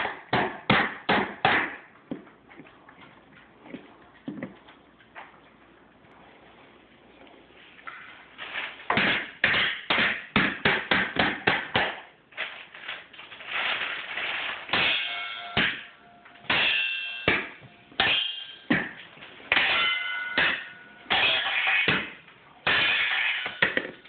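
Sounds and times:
steel bowls ringing: 0:19.6 - 0:21.5.

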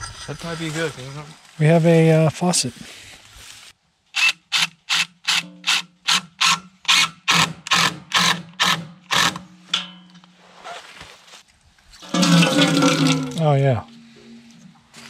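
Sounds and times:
water spurting: 0:12.0 - 0:13.5.

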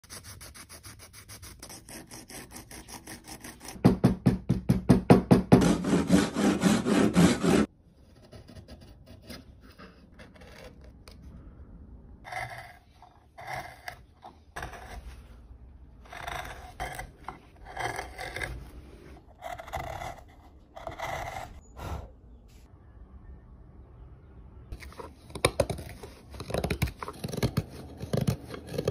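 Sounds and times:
hand tools carving wood: 0:05.3 - 0:11.0, 0:12.3 - 0:15.1, 0:16.0 - 0:21.6, 0:24.8 - 0:28.9.

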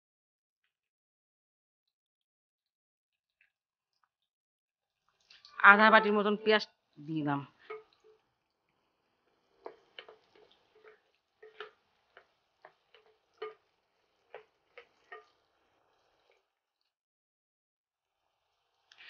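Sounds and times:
spatula tapping a pan: 0:07.6 - 0:08.2, 0:09.6 - 0:15.4.

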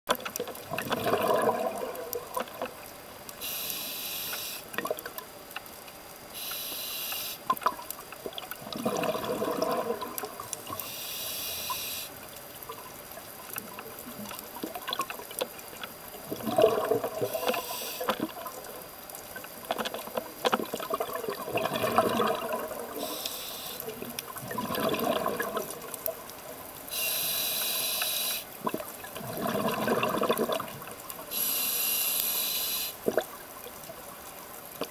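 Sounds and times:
bubbly exhale gurgling: 0:00.6 - 0:02.7, 0:08.6 - 0:10.8, 0:16.2 - 0:18.6, 0:19.8 - 0:23.2, 0:23.8 - 0:26.2, 0:28.6 - 0:31.5
regulator air hiss: 0:03.4 - 0:04.7, 0:06.3 - 0:07.5, 0:10.7 - 0:12.2, 0:17.3 - 0:18.1, 0:23.0 - 0:24.0, 0:26.9 - 0:28.5, 0:31.3 - 0:33.0.

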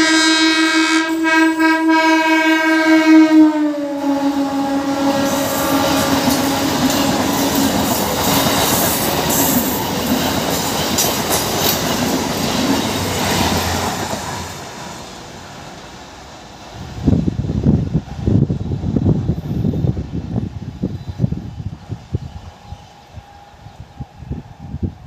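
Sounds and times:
train wheels clattering over rails: 0:05.2 - 0:15.9
wind buffeting microphone: 0:16.7 - 0:25.0.

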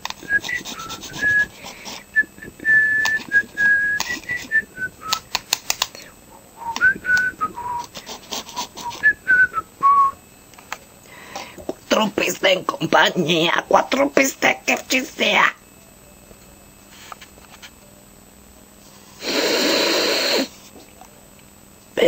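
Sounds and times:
person whistling a tune: 0:00.2 - 0:05.4, 0:06.6 - 0:07.9, 0:08.5 - 0:10.2.

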